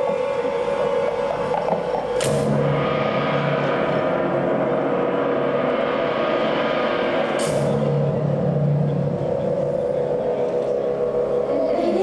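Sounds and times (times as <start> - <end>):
steady sustained drone: 0.0 - 12.0
crashing metallic gong hit: 2.2 - 11.5.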